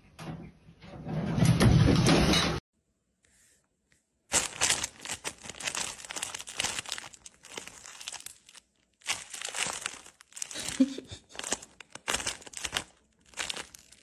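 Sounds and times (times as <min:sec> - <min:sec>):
plastic bag crinkling: 0:04.3 - 0:14.0.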